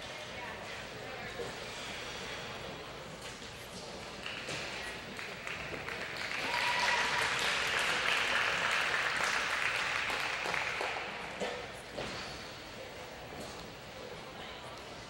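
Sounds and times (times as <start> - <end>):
audience applauding: 4.2 - 11.4.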